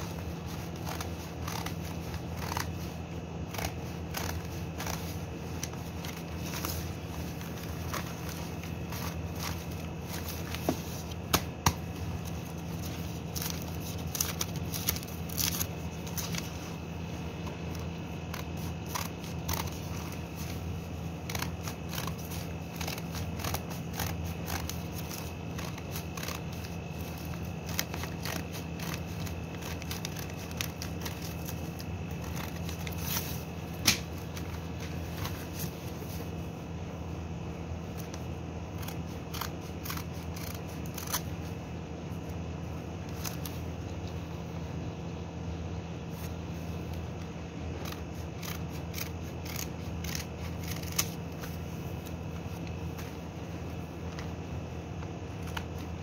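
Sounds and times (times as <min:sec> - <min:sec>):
paper tearing: 0:00.0 - 0:16.7, 0:17.6 - 0:36.3, 0:37.9 - 0:41.5, 0:47.7 - 0:53.0
newspaper rustling and crinkling: 0:00.0 - 0:36.5
steady low hum: 0:00.0 - 0:56.0.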